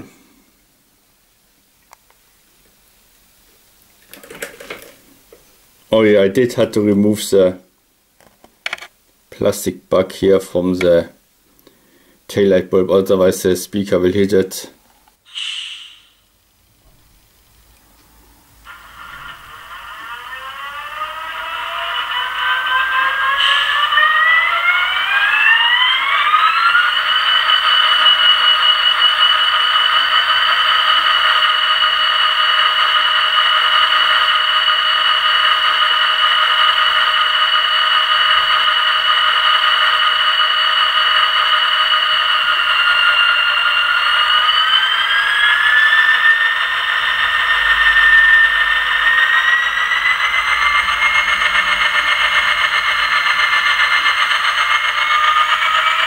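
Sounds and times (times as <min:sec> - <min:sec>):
diesel engine sound from small speaker: 0:17.8 - 0:56.0.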